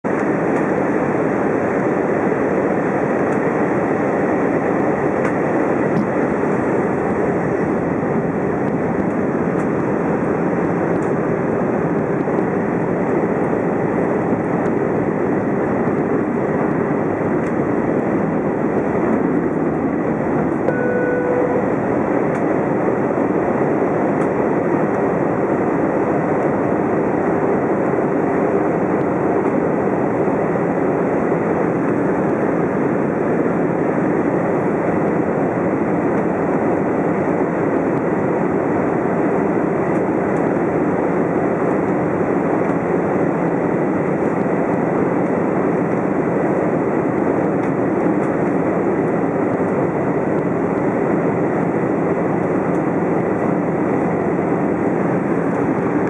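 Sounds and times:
airplane cabin engine rush: 0.0 - 56.0
short tone: 20.7 - 21.9.

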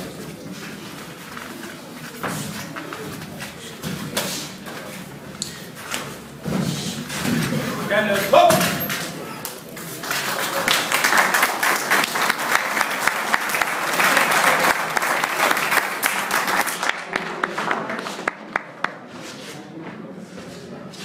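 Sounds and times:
spectators applauding: 9.9 - 19.0.

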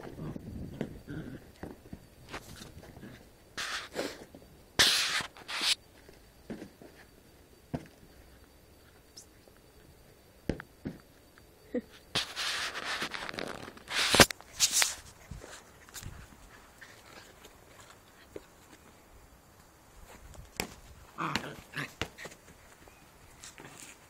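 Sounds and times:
rustling: 12.1 - 24.0.

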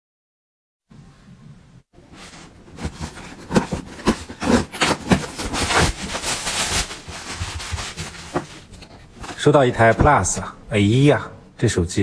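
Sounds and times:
cardboard parcel tearing: 2.7 - 10.4.

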